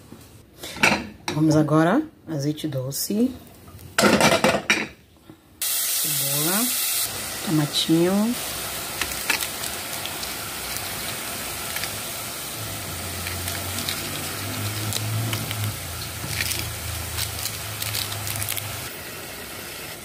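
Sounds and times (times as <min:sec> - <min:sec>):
vegetables sizzling in oil: 0:05.6 - 0:20.0.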